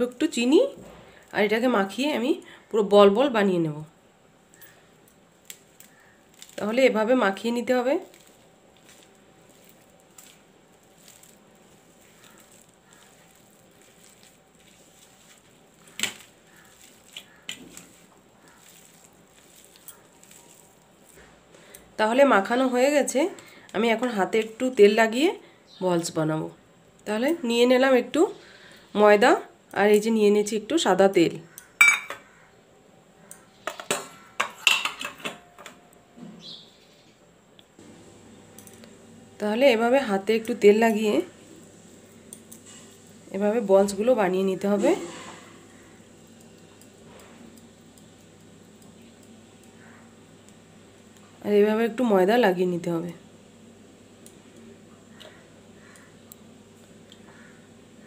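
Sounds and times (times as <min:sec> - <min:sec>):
hand kneading dough squishing: 0:05.4 - 0:21.5
metal bowls and plates clinking: 0:31.8 - 0:32.2, 0:33.7 - 0:35.8.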